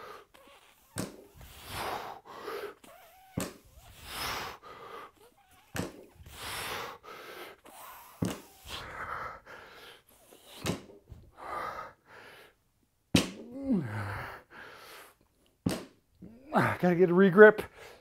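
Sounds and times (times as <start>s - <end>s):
person gasping breaths: 0.0s - 12.6s, 13.5s - 15.2s, 17.6s - 18.0s
person grunting: 13.4s - 14.4s, 16.2s - 16.9s.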